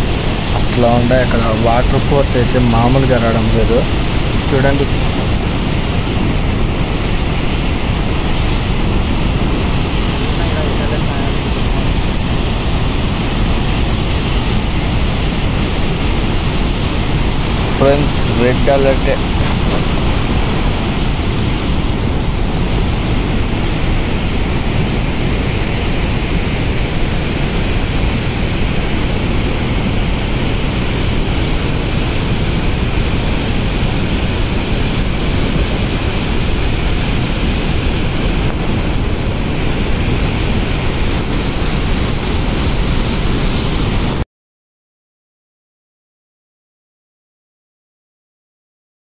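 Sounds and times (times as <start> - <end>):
floodwater roaring through spillway: 0.0 - 44.2.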